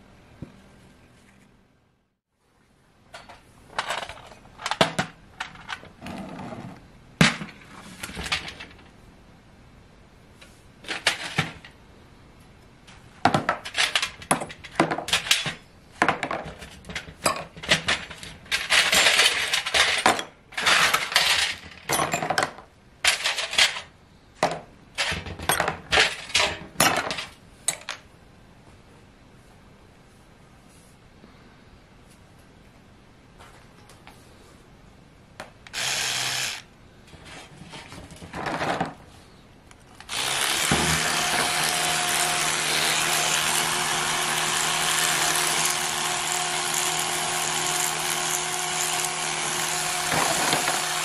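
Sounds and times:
metal parts clinking on metal tray: 0:17.0 - 0:22.4.

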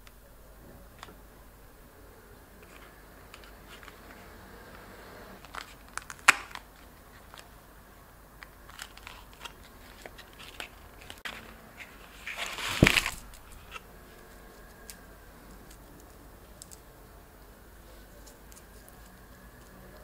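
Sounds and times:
cardboard box clicks and crinkles: 0:08.4 - 0:14.9
foil rustling and crinkling: 0:08.5 - 0:14.9.

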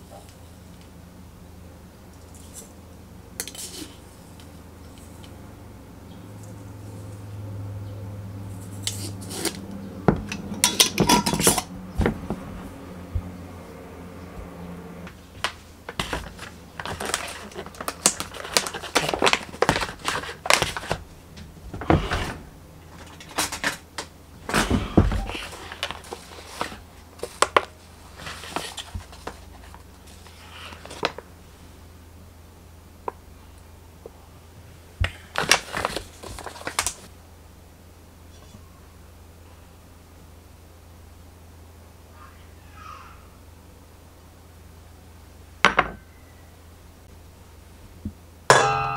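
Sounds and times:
spoon clinking on metal bowl: 0:48.5 - 0:48.9.

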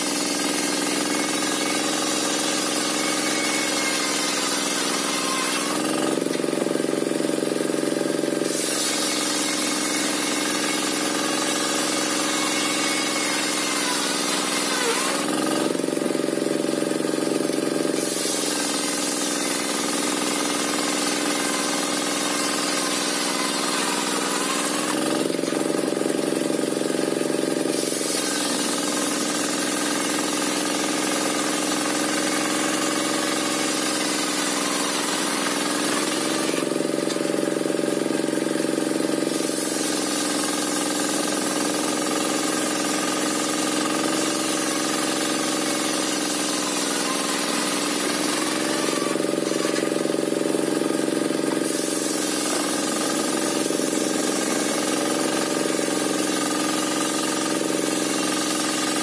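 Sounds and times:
saw blade hissing through log: 0:00.0 - 0:06.3, 0:08.4 - 0:16.0, 0:17.9 - 0:26.2, 0:27.6 - 0:29.4, 0:39.2 - 0:40.6, 0:42.7 - 0:50.0, 0:51.5 - 0:57.1.

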